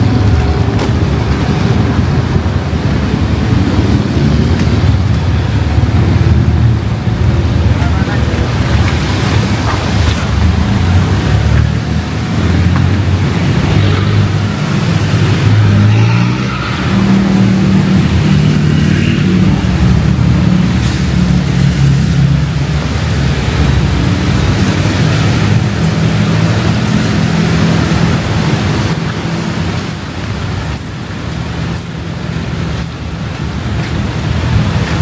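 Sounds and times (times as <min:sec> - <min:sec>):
vehicle engines pulling away: 0:00.0 - 0:35.0
rain hiss on wet road: 0:19.5 - 0:35.0.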